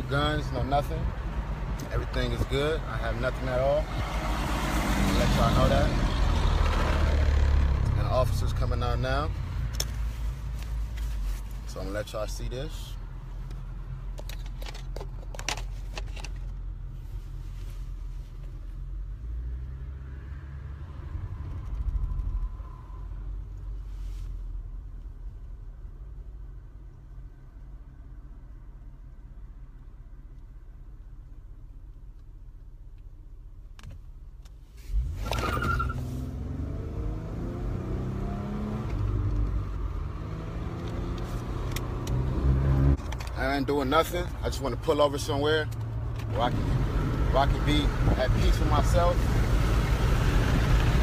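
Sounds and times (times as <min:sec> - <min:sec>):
car engine inside cabin: 0:00.0 - 0:51.0
road noise rumble: 0:00.0 - 0:51.0
car driving rumble inside cabin: 0:29.0 - 0:51.0.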